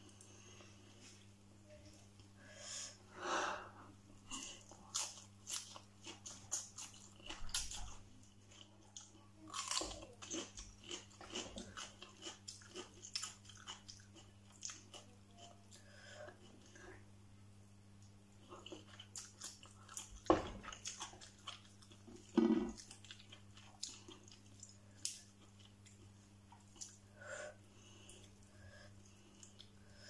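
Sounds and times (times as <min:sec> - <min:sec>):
close-up chewing with crunches: 0:04.3 - 0:16.8, 0:18.4 - 0:27.0.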